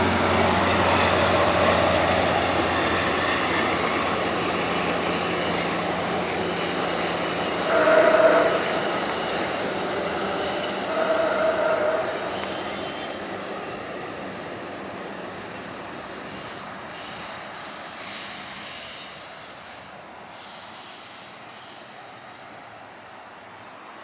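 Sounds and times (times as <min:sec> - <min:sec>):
train wheel squeal: 0:00.0 - 0:19.7, 0:20.4 - 0:23.5
train rolling past on rails: 0:00.0 - 0:24.0.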